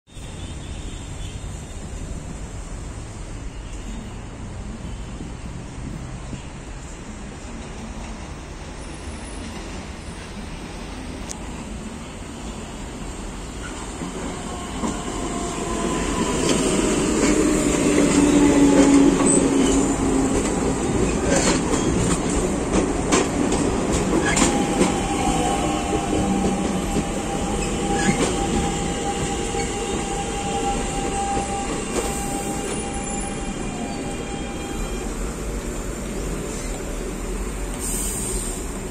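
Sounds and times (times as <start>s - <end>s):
electric train arriving: 1.6s - 38.9s
train brake whine: 24.1s - 35.3s, 37.6s - 38.9s.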